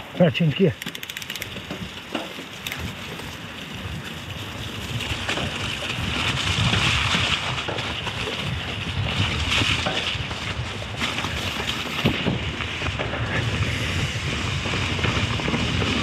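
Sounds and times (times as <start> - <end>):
bike tyres rattling over rough trail: 0.0 - 16.0
wind noise on microphone: 1.0 - 16.0.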